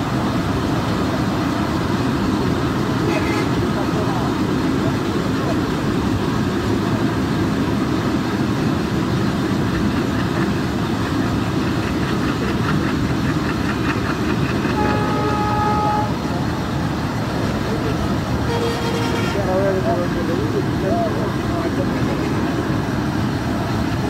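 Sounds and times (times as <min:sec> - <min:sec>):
rushing air: 0:00.0 - 0:24.0
train wheels rumbling on rails: 0:00.0 - 0:24.0
train horn: 0:03.0 - 0:03.6, 0:14.7 - 0:16.2, 0:18.4 - 0:19.5.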